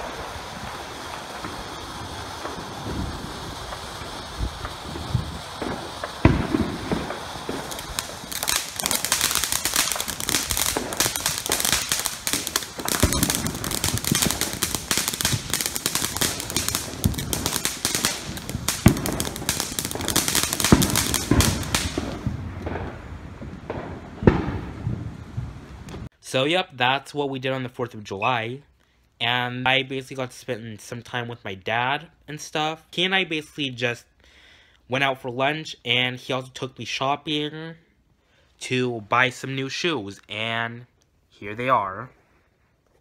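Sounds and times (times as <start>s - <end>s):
firework crackling: 0.0s - 26.1s
firework hissing: 0.0s - 26.1s.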